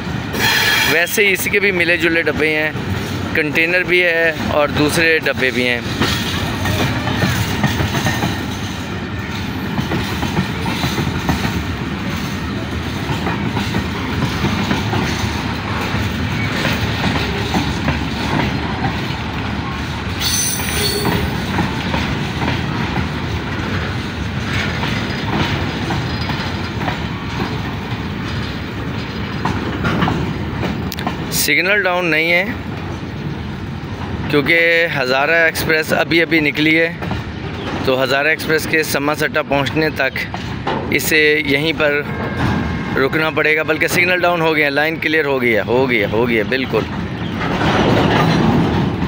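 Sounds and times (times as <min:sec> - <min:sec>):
steel wheels rumbling on rail: 0:00.0 - 0:49.0
clatter over rail joints: 0:00.3 - 0:49.0
high wheel squeal: 0:00.4 - 0:01.0, 0:20.2 - 0:21.4.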